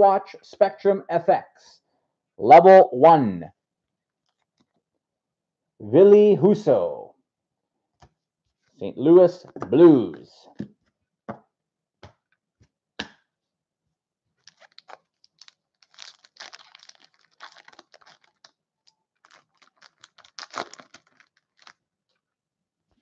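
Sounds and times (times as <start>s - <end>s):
cards in plastic sleeves clicking: 14.4s - 18.5s
plastic wrapper rustling: 14.4s - 22.2s.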